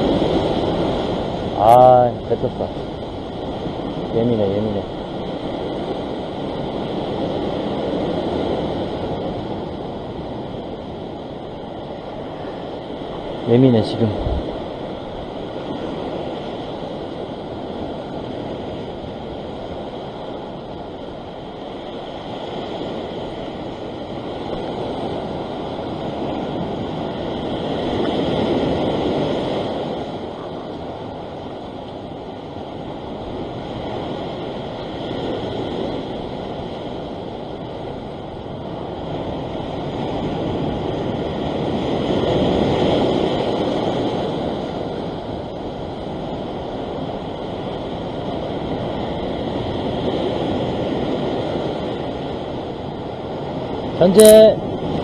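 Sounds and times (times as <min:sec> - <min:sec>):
ocean surf breaking on rocks: 0:00.0 - 0:55.0.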